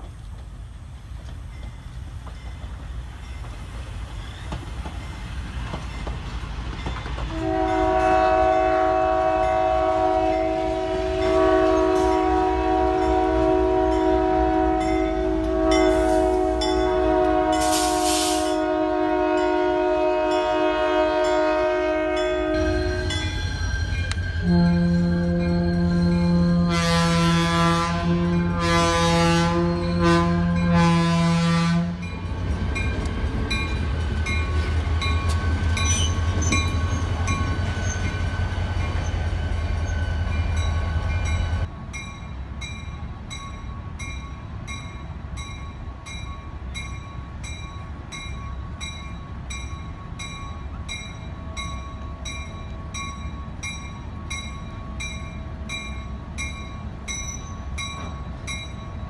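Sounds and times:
locomotive bell ringing: 6.8s - 17.8s, 19.3s - 27.4s, 28.0s - 59.0s
locomotive horn chord: 7.3s - 23.2s, 24.4s - 32.1s.

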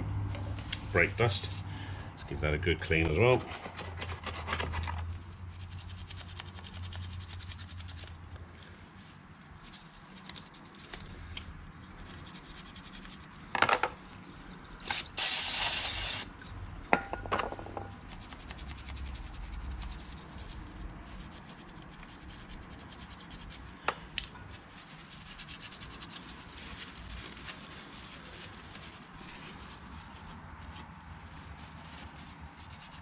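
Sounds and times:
brush scrubbing metal: 3.0s - 13.4s, 18.0s - 33.0s.

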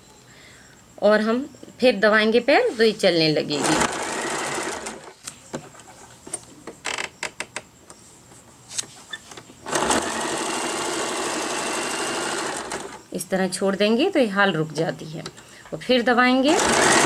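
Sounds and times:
sewing machine running: 3.6s - 5.1s, 9.7s - 13.0s, 16.5s - 17.0s.

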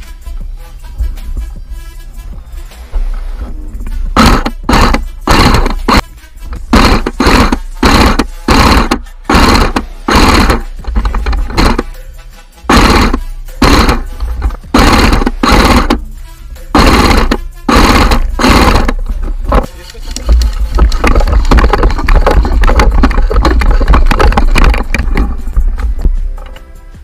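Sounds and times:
running footsteps and gear rattle: 3.0s - 12.0s, 12.7s - 16.0s, 16.8s - 26.7s
airsoft rifle bursts: 4.2s - 6.0s, 6.7s - 11.9s, 12.7s - 16.0s, 16.7s - 19.7s.

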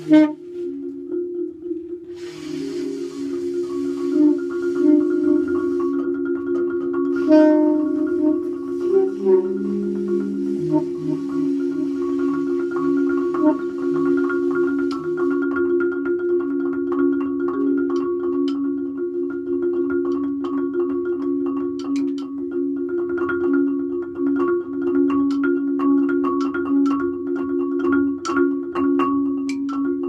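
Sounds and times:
saxophone: 0.0s - 0.8s, 2.4s - 6.2s, 7.2s - 15.5s
marimba mallet clicks: 2.3s - 23.7s, 24.3s - 30.0s.

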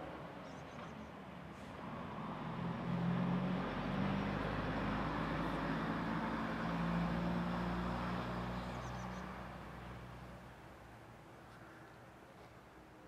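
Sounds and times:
small car driving past: 1.6s - 10.4s.

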